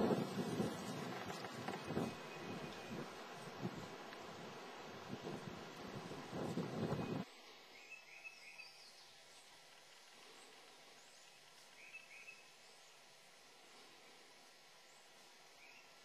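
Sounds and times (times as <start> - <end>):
wind gust on microphone: 0.0 - 7.2
faint bird chirps: 7.0 - 13.2, 14.8 - 16.0.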